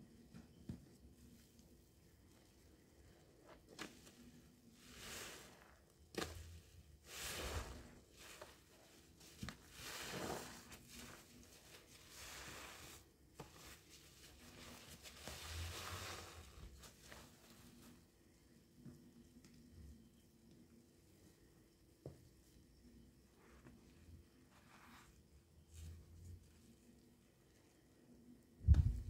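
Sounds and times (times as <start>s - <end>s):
sponge squelching: 2.2s - 18.1s.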